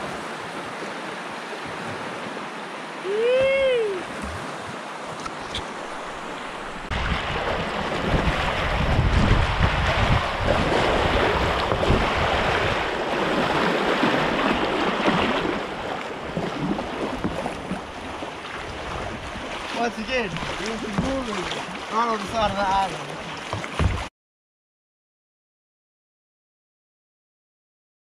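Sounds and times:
whitewater rushing: 0:00.0 - 0:24.1
wind buffeting microphone: 0:03.2 - 0:21.8.

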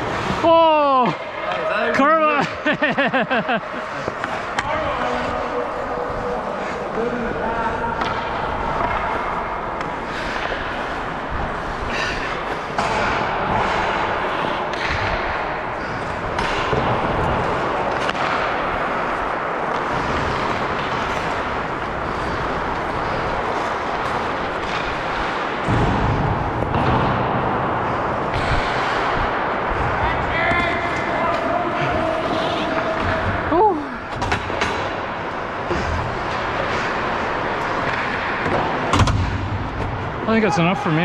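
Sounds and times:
hockey sticks and puck knocking: 0:03.8 - 0:05.4, 0:08.0 - 0:11.0, 0:12.3 - 0:29.8, 0:34.1 - 0:40.0
skate blades scraping ice: 0:08.1 - 0:27.1.

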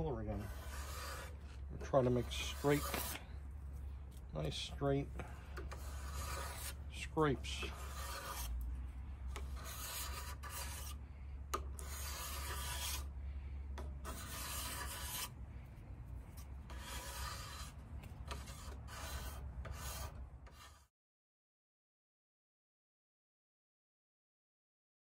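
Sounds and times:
hand scraper shaving wood: 0:00.1 - 0:03.4, 0:04.5 - 0:08.6, 0:09.3 - 0:11.0, 0:11.6 - 0:13.1, 0:13.8 - 0:15.3, 0:16.4 - 0:20.8.

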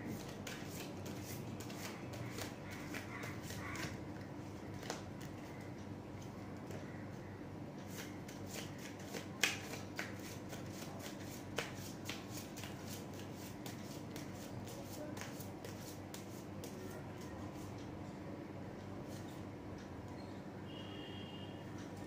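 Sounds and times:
cards being shuffled: 0:00.1 - 0:05.6, 0:07.9 - 0:16.8.

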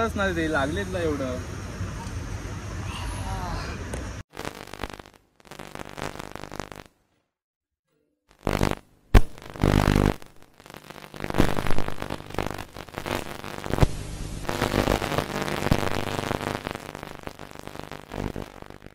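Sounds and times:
distorted glitch bursts: 0:04.3 - 0:06.9, 0:08.4 - 0:18.9.

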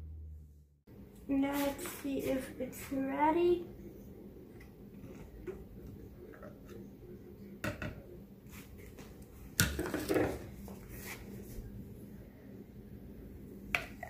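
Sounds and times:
faint steady hum: 0:00.0 - 0:14.0
kitchen things knocking and clattering: 0:07.6 - 0:08.0, 0:09.6 - 0:10.5.

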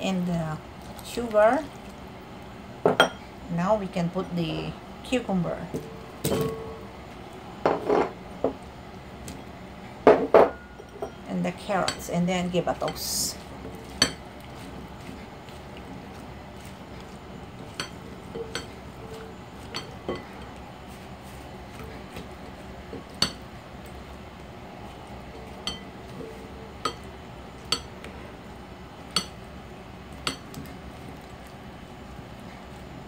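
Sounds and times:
spatula clinking against glass bowl: 0:25.4 - 0:27.9.

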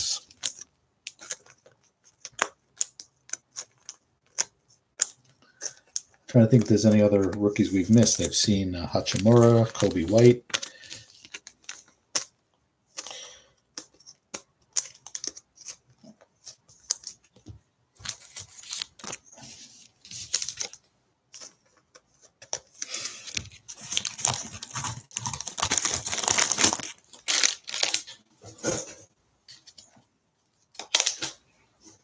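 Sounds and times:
plastic wrapping crinkling: 0:00.0 - 0:12.3, 0:18.0 - 0:21.6, 0:22.4 - 0:28.2
cards clicking and tapping: 0:00.4 - 0:08.4, 0:09.0 - 0:19.2.

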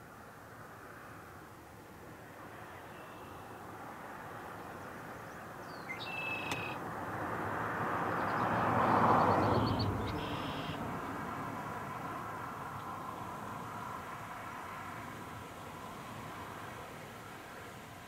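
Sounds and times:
vehicle passing on road: 0:00.1 - 0:18.0
short high bird calls: 0:05.8 - 0:06.8, 0:10.1 - 0:10.8.

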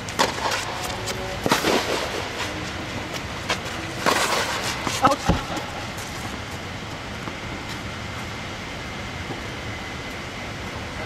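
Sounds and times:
tennis ball struck by rackets: 0:01.4 - 0:02.2.

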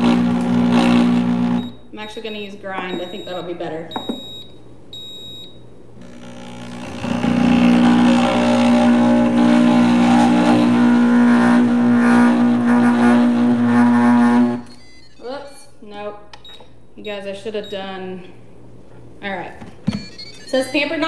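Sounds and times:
blender motor humming: 0:00.0 - 0:01.7, 0:06.0 - 0:14.8.

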